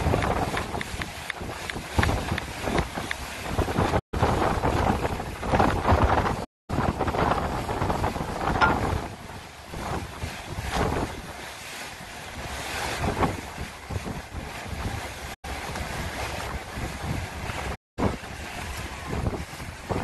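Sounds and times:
choppy water along boat hull: 0:00.0 - 0:20.0
wind buffeting microphone: 0:00.0 - 0:20.0.

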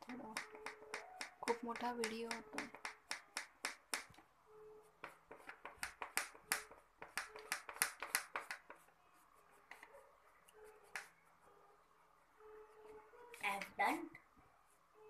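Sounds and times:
crayon scribbling on paper: 0:04.8 - 0:11.2.

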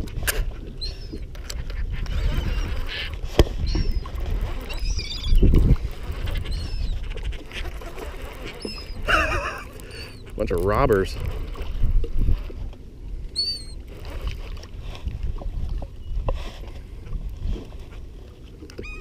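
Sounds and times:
wind rumble on microphone: 0:00.0 - 0:19.0
birds calling: 0:00.8 - 0:05.6, 0:06.3 - 0:10.4, 0:13.3 - 0:13.8.

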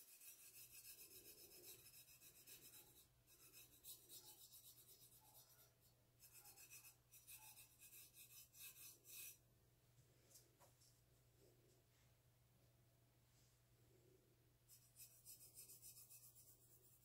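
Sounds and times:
fingertip rubbing paste on steel: 0:00.0 - 0:09.4.

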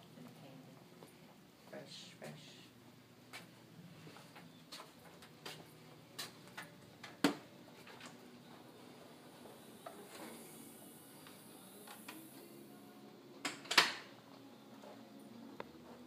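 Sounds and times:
footsteps on tile floor: 0:03.3 - 0:06.6, 0:07.6 - 0:10.6.

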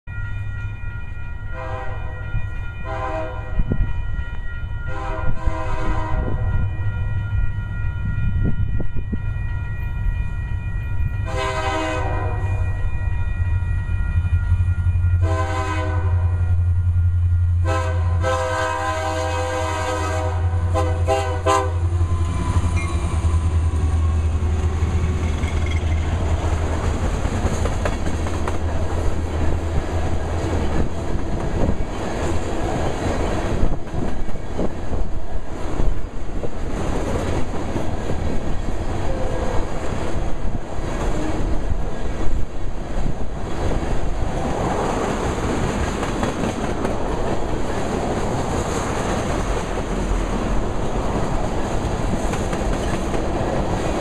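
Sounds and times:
locomotive air horn blasts: 0:01.4 - 0:07.7, 0:11.2 - 0:12.9, 0:15.2 - 0:16.7, 0:17.5 - 0:24.4
train wheels clattering on rails: 0:21.9 - 0:54.0.

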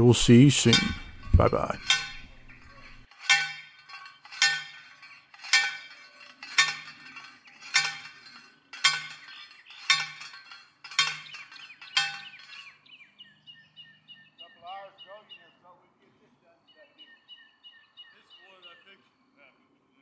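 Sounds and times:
post driver clanking on metal post: 0:00.0 - 0:12.7.

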